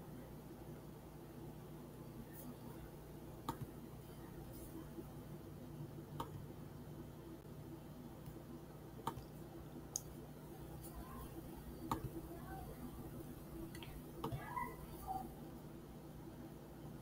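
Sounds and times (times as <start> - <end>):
faint low steady hum: 0.0 - 17.0
computer mouse clicking: 3.4 - 3.7, 6.2 - 6.4, 9.0 - 10.1, 11.9 - 12.2.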